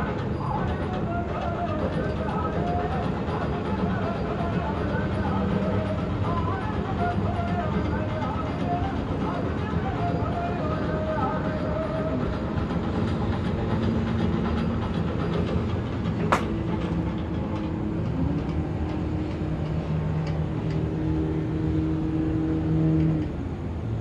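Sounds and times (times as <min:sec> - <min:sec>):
city traffic rumble: 0:00.0 - 0:24.0
sharp click: 0:16.3 - 0:16.6.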